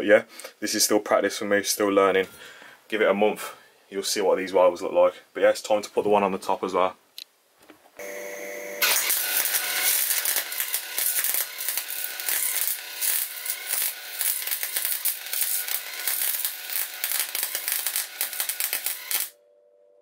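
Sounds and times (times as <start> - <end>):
welder arc crackling: 8.8 - 19.4.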